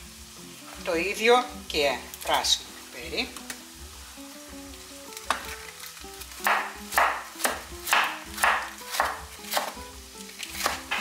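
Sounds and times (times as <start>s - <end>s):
background music: 0.0s - 11.0s
knife slicing on cutting board: 6.4s - 9.8s, 10.5s - 11.0s.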